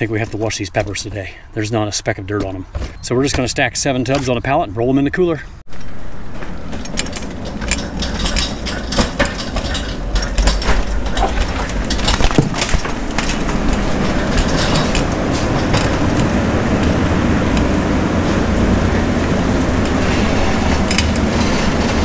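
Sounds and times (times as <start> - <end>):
pallet jack rolling on concrete: 6.2 - 22.0
plastic tubs clacking: 6.7 - 17.7.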